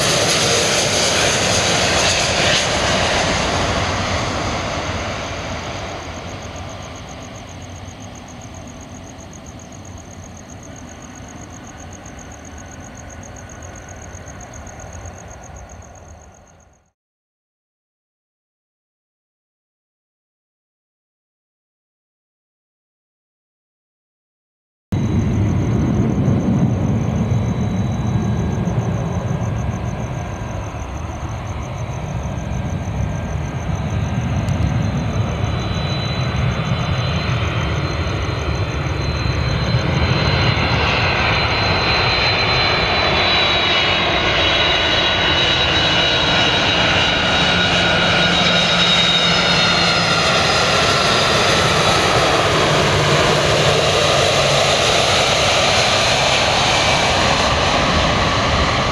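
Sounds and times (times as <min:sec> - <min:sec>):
jet engines whining: 0:00.0 - 0:16.4, 0:25.0 - 0:58.9.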